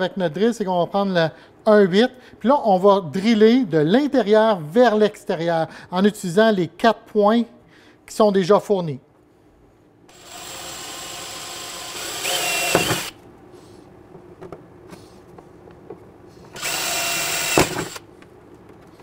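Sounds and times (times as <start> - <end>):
cordless drill boring through plastic: 10.1 - 13.2, 16.6 - 18.0.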